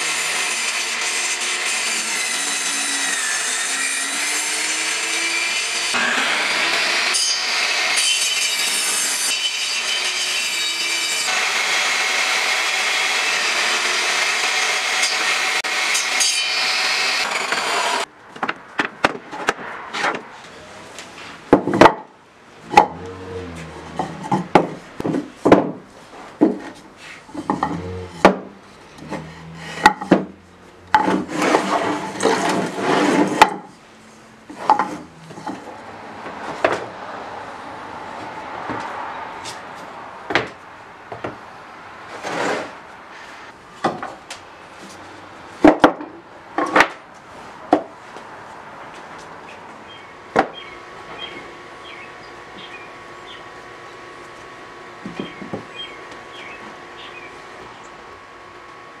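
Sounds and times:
table saw cutting wood: 0.0s - 18.1s, 29.0s - 33.7s
wooden boards knocking: 21.5s - 22.1s, 24.0s - 25.8s, 29.8s - 31.3s.

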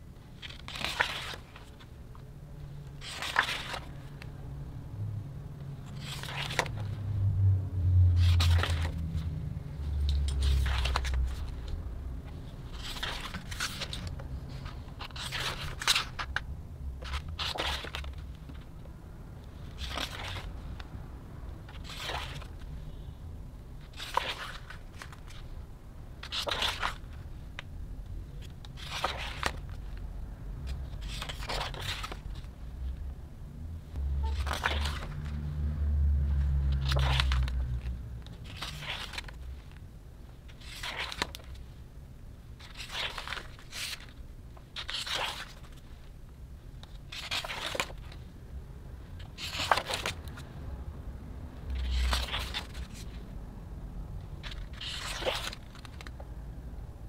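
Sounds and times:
book pages turning: 0.4s - 4.3s, 5.8s - 7.0s, 8.1s - 20.9s, 21.6s - 22.8s, 23.8s - 25.6s, 26.2s - 27.7s, 28.3s - 30.0s, 30.6s - 33.0s, 34.2s - 41.8s, 42.6s - 46.1s, 46.8s - 48.3s, 49.2s - 50.5s, 51.6s - 53.2s, 54.4s - 56.3s.

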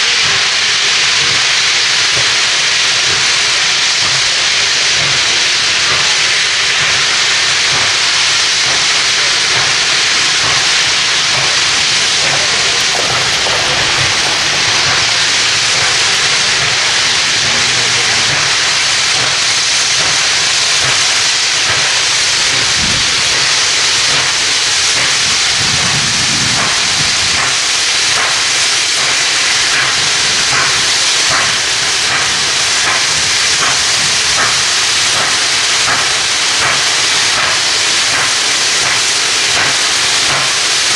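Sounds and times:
steam hissing: 0.0s - 40.9s
steam locomotive exhaust chuffs: 0.0s - 40.9s.

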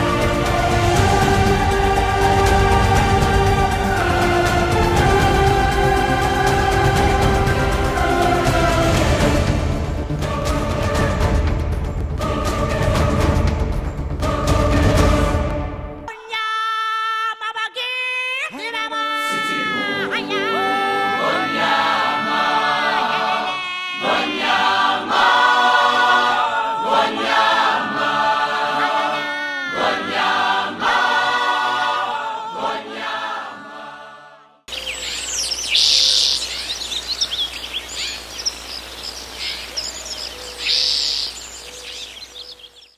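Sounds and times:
group singing with music: 0.0s - 16.1s, 19.2s - 35.6s
birds chirping: 34.7s - 42.9s.

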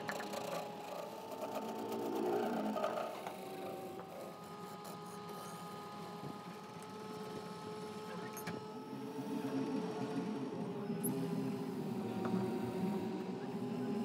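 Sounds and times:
wood lathe running: 0.0s - 8.1s.

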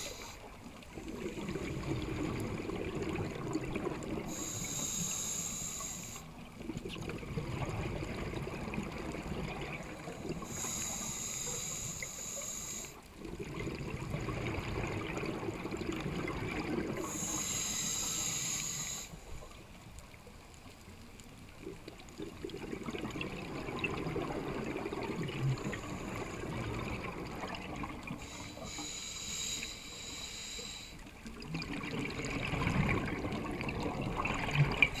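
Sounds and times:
regulator inhalation hiss: 0.0s - 0.6s, 4.3s - 6.4s, 10.2s - 13.1s, 17.0s - 19.4s, 28.2s - 31.1s.

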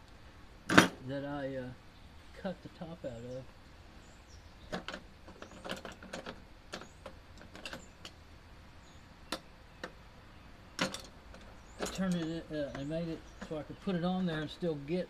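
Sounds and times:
metallic bolts clinking: 10.8s - 14.5s.

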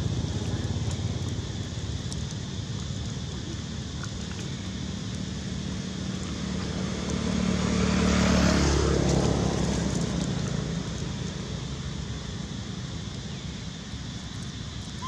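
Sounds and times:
motor vehicle driving past: 6.0s - 11.2s.

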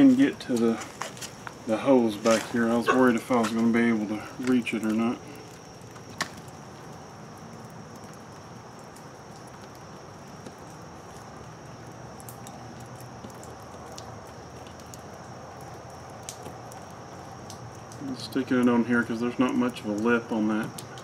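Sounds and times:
insect trilling: 0.0s - 13.4s.

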